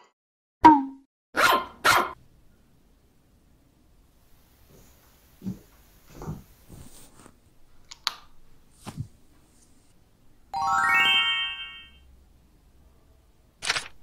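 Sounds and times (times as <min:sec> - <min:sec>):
rising chime notes: 0:10.5 - 0:12.0.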